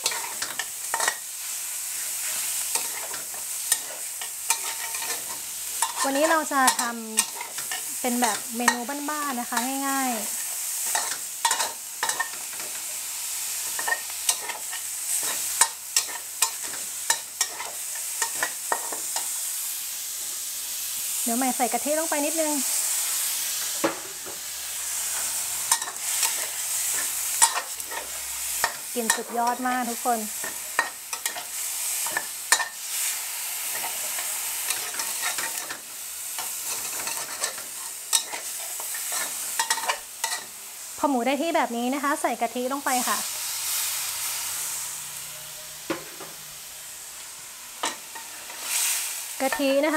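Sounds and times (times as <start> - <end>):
metal spatula scraping wok: 0.0 - 19.3, 23.5 - 40.6
meat sizzling in a wok: 0.0 - 49.9.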